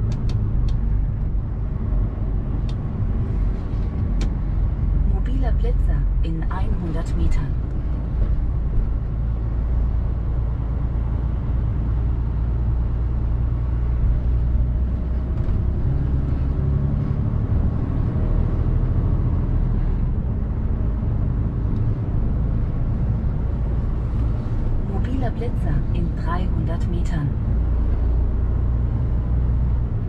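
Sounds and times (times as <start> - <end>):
road noise: 0.0 - 30.0.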